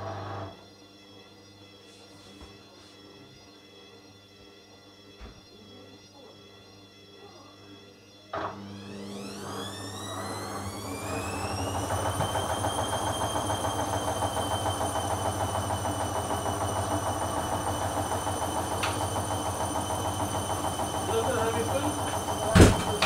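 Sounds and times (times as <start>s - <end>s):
washing machine drum whine: 8.4s - 23.0s.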